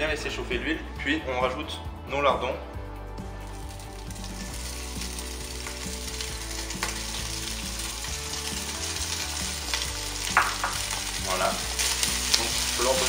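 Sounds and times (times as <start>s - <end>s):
meat sizzling in oil: 3.4s - 13.0s
small knock on pot: 10.3s - 10.8s.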